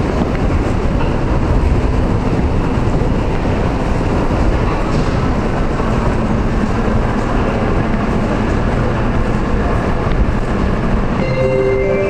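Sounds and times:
subway train rumbling: 0.0s - 12.0s
marimba-like chime: 11.2s - 12.0s.

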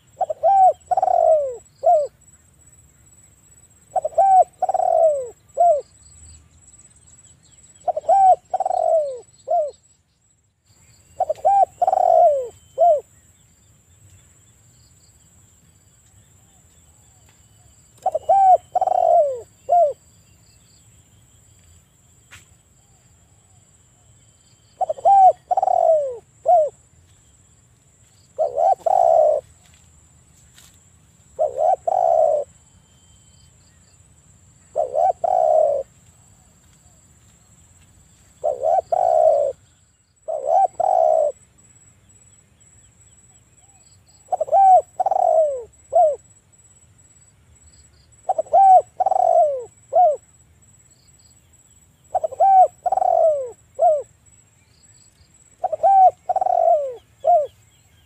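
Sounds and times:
dove cooing: 0.0s - 2.2s, 3.9s - 5.9s, 7.8s - 9.8s, 11.2s - 13.1s, 18.0s - 20.0s, 24.8s - 26.8s, 28.3s - 29.7s, 31.4s - 32.6s, 34.7s - 36.5s, 38.4s - 39.6s, 40.2s - 41.4s, 43.6s - 46.2s, 48.2s - 50.2s, 52.1s - 54.1s, 55.6s - 57.6s.

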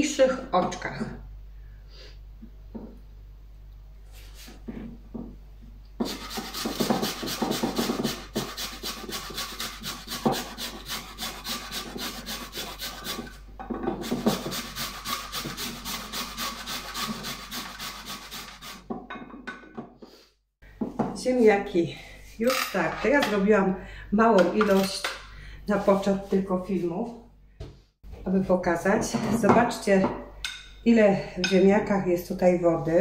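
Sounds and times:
potatoes grated on metal grater: 6.0s - 13.4s, 14.0s - 18.9s.

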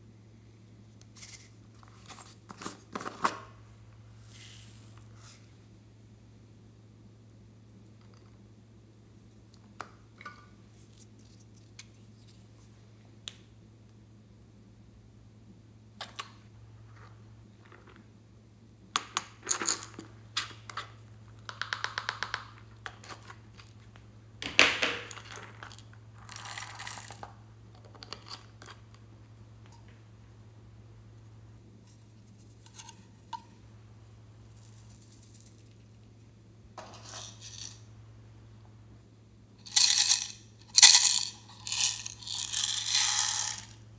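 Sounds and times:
contents rattling out of container: 36.8s - 37.8s, 39.7s - 43.8s.

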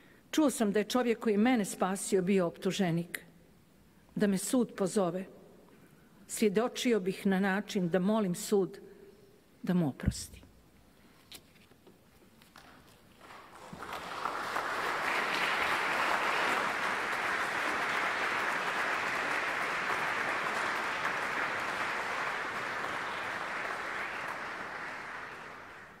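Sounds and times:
large audience applauding: 13.2s - 26.0s.

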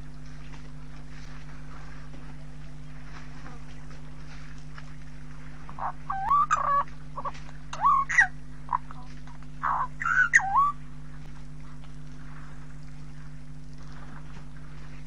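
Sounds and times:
steady low hum: 0.0s - 15.0s
bird calling: 5.7s - 10.8s.

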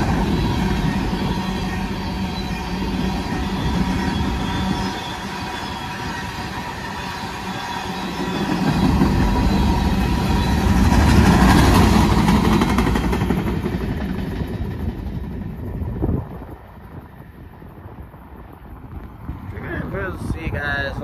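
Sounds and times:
freight train wheels clattering: 0.0s - 15.5s.

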